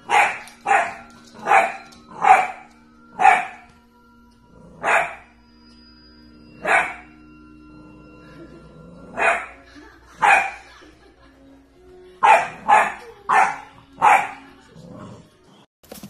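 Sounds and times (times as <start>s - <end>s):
puppy barking: 0.0s - 2.6s, 3.2s - 3.6s, 4.8s - 5.3s, 6.6s - 7.1s, 9.2s - 9.6s, 10.2s - 10.7s, 12.2s - 14.5s.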